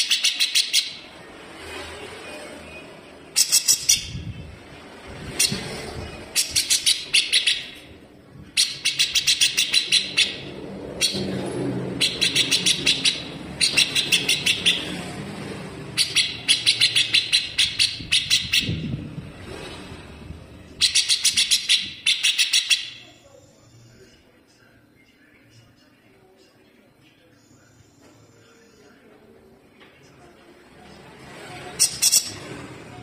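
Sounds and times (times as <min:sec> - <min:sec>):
bird chattering song: 0:00.0 - 0:01.1, 0:03.3 - 0:04.4, 0:06.3 - 0:07.9, 0:08.6 - 0:11.3, 0:12.0 - 0:15.0, 0:16.0 - 0:18.9, 0:20.8 - 0:24.0, 0:31.8 - 0:32.4.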